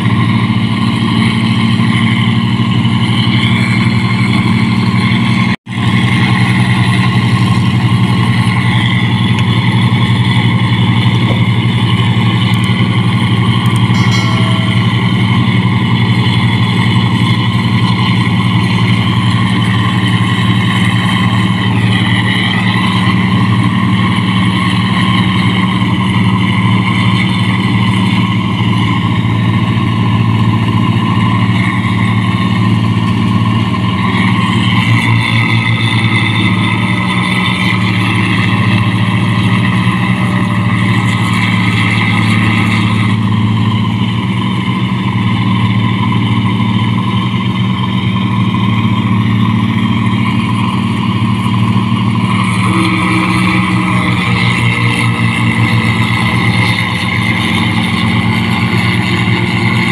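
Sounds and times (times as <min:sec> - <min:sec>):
combine harvester diesel engine: 0:00.0 - 0:59.9
machinery whining: 0:06.2 - 0:44.6, 0:49.4 - 0:59.9.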